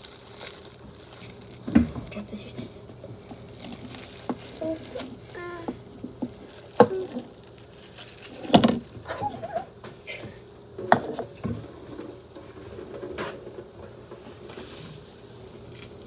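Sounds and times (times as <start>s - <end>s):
plastic cup crinkling and clicking: 2.8s - 9.0s.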